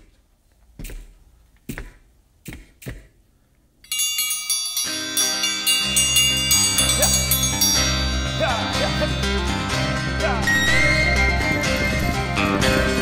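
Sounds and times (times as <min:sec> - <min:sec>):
intro music with chiming notes: 0:03.9 - 0:13.0.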